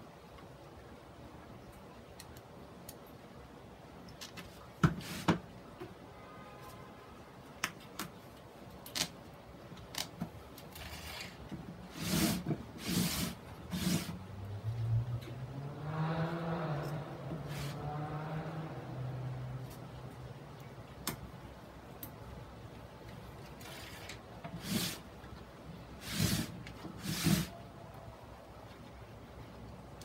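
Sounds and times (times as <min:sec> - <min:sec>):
rustling scrape of board: 0:04.9 - 0:05.4, 0:10.7 - 0:14.2, 0:23.6 - 0:25.1, 0:26.0 - 0:27.6.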